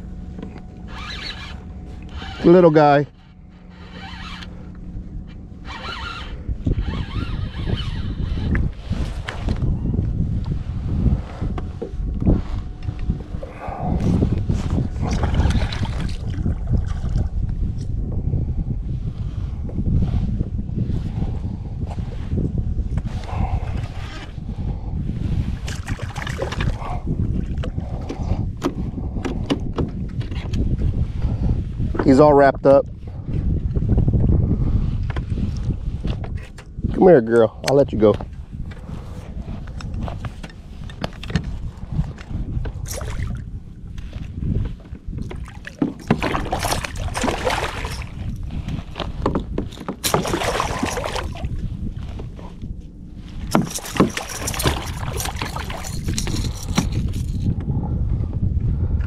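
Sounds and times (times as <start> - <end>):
wind rumbling on microphone: 0.0 - 59.0
water sloshing against kayak: 11.2 - 17.6, 25.2 - 32.2, 38.2 - 57.7
water splashing: 45.4 - 48.2, 50.0 - 51.5, 53.5 - 57.0
fish thrashing at surface: 45.4 - 48.4, 50.0 - 51.6, 53.5 - 57.4.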